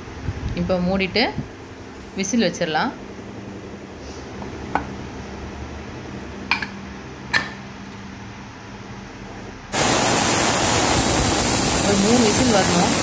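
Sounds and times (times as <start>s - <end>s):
steam hissing from pressure cooker: 9.7s - 13.0s.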